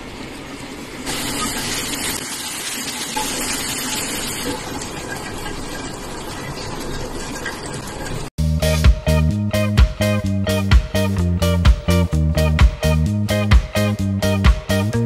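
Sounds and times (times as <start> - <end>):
faucet water running into basin: 0.0 - 8.3.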